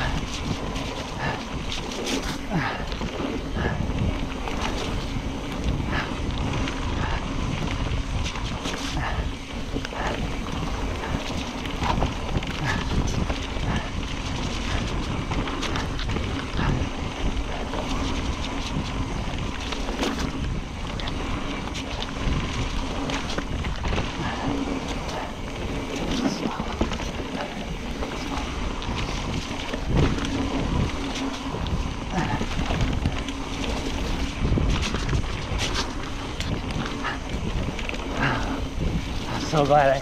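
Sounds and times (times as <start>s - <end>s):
bike rattling over rough ground: 0.0s - 40.0s
bike tyre noise: 0.0s - 40.0s
wind on microphone: 0.0s - 40.0s.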